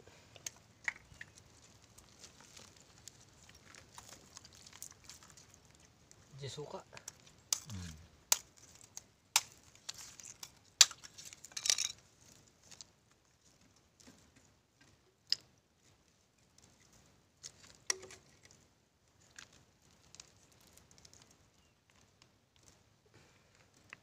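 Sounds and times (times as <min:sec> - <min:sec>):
sea urchin shells clicking: 0:00.4 - 0:12.0.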